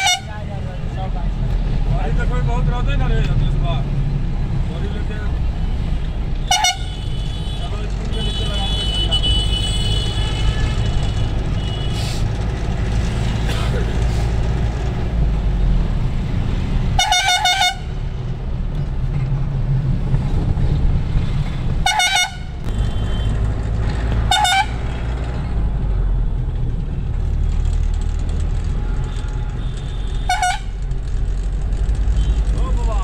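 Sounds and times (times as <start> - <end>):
vehicle horn honking: 0.0 - 0.3, 6.4 - 12.1, 17.0 - 17.9, 21.8 - 23.4, 24.3 - 24.8, 28.8 - 30.8
engine and road rumble: 0.0 - 33.0.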